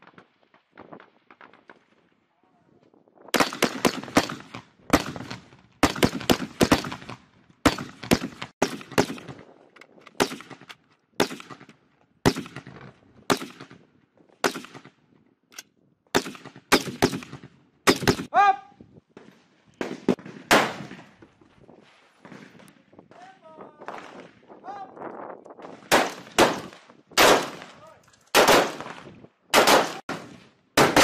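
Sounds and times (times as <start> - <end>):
rifle shots echoing: 3.4 - 9.4, 10.2 - 13.8, 16.1 - 18.3, 19.8 - 21.2, 25.6 - 31.0.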